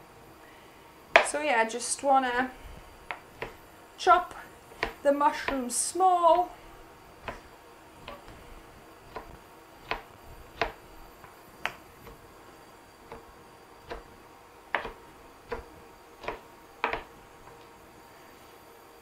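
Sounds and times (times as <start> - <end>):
knife chopping on board: 3.0 - 3.6, 4.7 - 5.6, 7.2 - 8.4, 9.0 - 12.3, 13.0 - 17.2.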